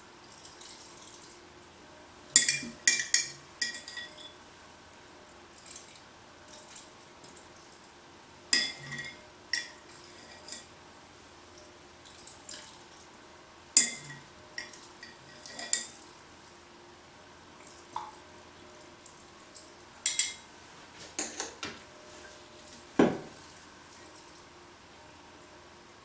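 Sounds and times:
glasses clinking: 2.4 - 4.4, 8.6 - 10.7, 13.8 - 15.9, 20.0 - 20.4.

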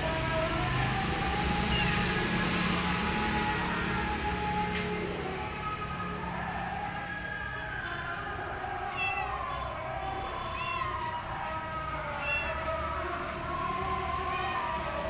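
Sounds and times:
cat meowing loudly: 1.6 - 2.2, 8.7 - 13.2, 14.2 - 14.9.

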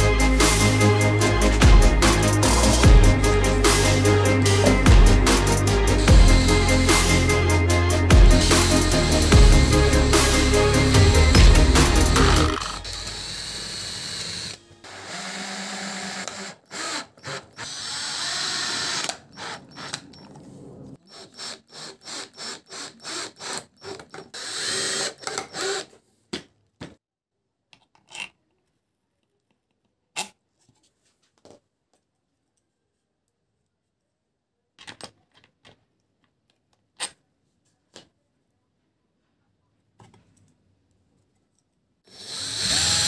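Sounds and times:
electric drill boring into wood: 10.9 - 20.1, 21.1 - 25.9, 42.1 - 43.0
drill driving screw into wood: 11.1 - 20.1, 21.1 - 26.0, 42.1 - 43.0.

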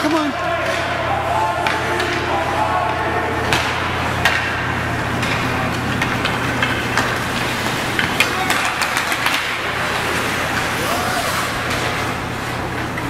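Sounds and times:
faint spectators' voices: 0.0 - 6.0
hockey sticks and puck clacking: 0.0 - 13.0
steady low hum: 0.0 - 13.0.

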